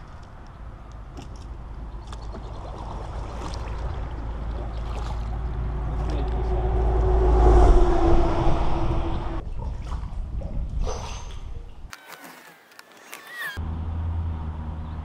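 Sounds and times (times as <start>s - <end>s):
engine humming: 0.0s - 9.4s
low rumble: 2.4s - 10.8s.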